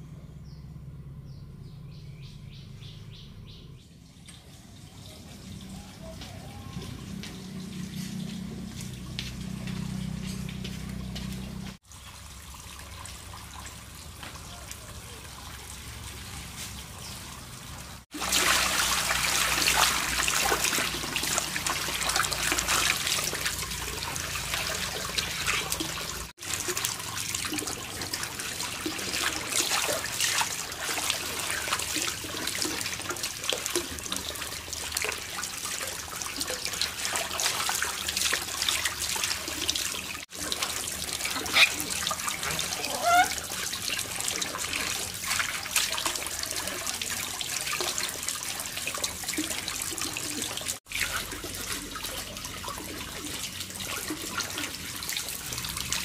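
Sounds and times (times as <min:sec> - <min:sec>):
water running and splashing: 0:04.3 - 0:56.0.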